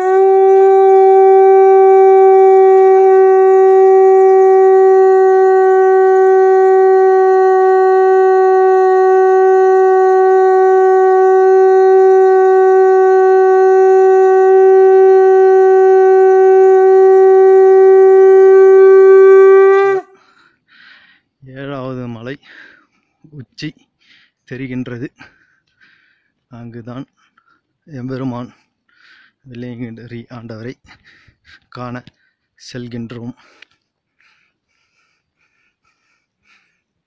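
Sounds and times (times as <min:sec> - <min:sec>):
conch shell blown: 0:00.0 - 0:20.3.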